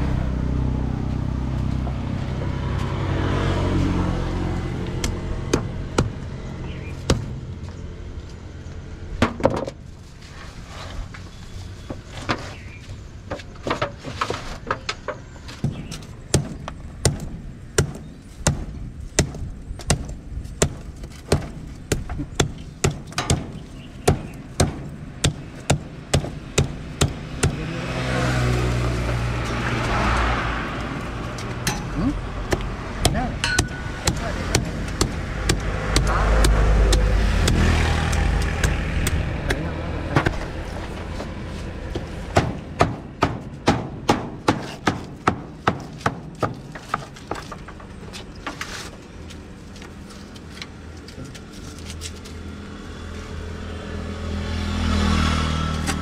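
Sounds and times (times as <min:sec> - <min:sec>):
vehicle rumbling past: 0:00.0 - 0:09.2, 0:21.6 - 0:44.5, 0:50.3 - 0:56.0.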